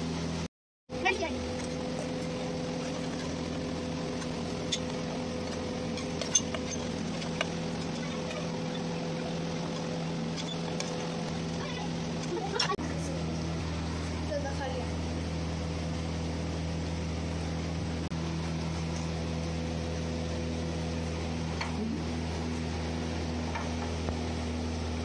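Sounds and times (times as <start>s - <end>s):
motor hum: 0.0s - 25.0s.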